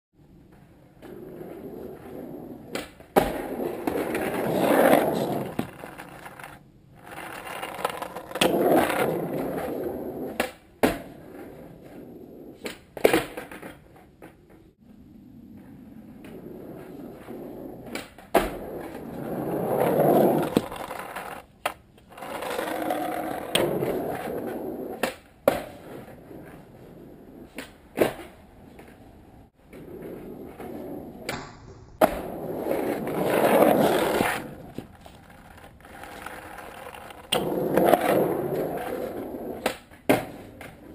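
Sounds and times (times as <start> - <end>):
skateboard wheels rolling on asphalt: 0.2 - 31.3, 32.0 - 40.9
skateboard clacking on pavement: 2.6 - 11.4, 17.8 - 26.5, 32.0 - 40.9.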